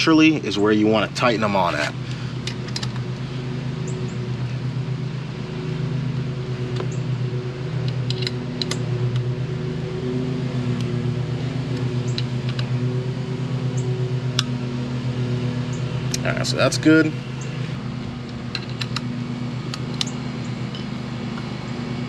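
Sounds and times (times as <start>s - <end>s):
machine humming: 0.0s - 22.0s
strap and metal bracket clicks: 7.8s - 9.3s, 12.1s - 12.7s, 18.2s - 19.1s, 19.7s - 20.8s.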